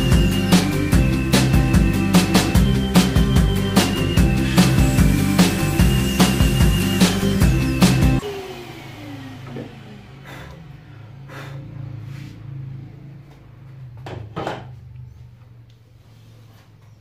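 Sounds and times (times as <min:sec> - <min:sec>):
saw whine winding down: 0:00.0 - 0:12.0
shop vacuum humming: 0:00.0 - 0:13.3.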